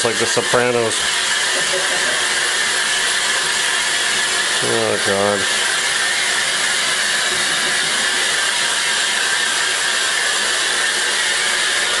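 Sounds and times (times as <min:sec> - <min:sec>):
hair dryer blowing: 0:00.0 - 0:12.0.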